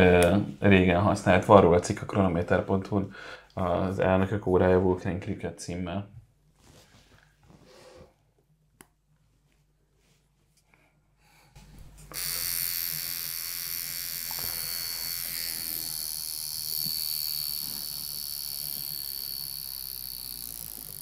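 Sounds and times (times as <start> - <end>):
wristwatch alarm buzzing: 12.1 - 21.0.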